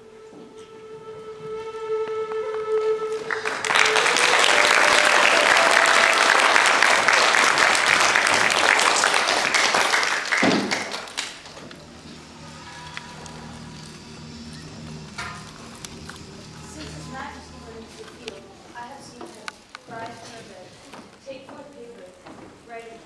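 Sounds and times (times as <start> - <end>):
held musical note: 0.0 - 10.4, 11.0 - 18.7
faint music: 0.0 - 23.0
audience applauding: 2.0 - 17.5.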